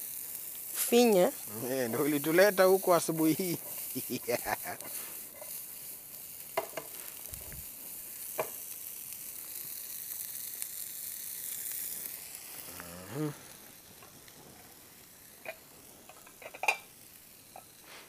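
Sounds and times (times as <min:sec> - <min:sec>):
vegetables sizzling in a frying pan: 0:00.0 - 0:18.0
short vocal sound: 0:12.7 - 0:13.5.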